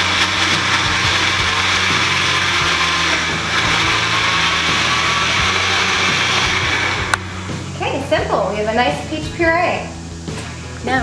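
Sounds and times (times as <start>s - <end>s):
blender running: 0.0s - 8.1s.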